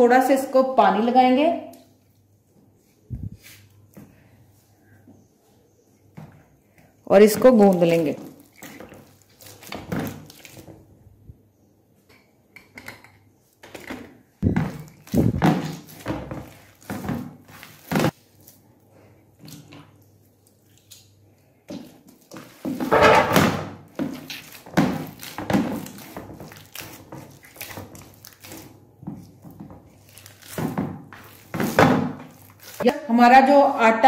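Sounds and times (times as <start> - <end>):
dough kneaded on steel plate: 14.2 - 20.0.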